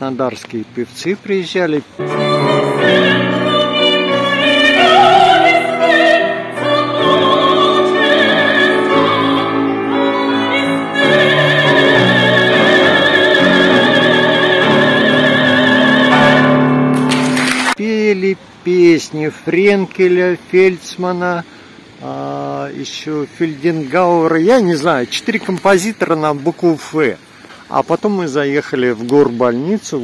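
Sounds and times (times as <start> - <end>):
woman singing opera: 2.0 - 16.6
instrumental accompaniment: 2.0 - 17.8.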